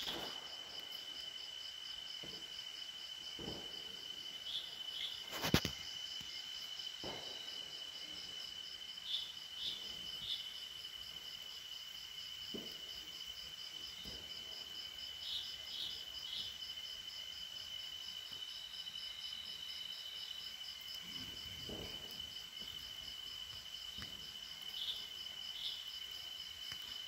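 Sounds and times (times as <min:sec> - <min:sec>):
burning husk crackling: 0:00.0 - 0:01.4
night insects trilling: 0:00.0 - 0:27.0
short insect chirps: 0:04.4 - 0:06.5.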